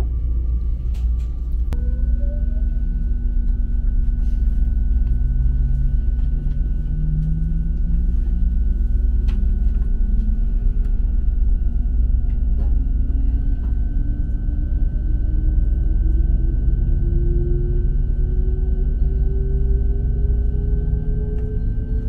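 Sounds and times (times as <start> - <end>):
train rumble: 0.0 - 22.0
faint high tone: 1.8 - 3.2.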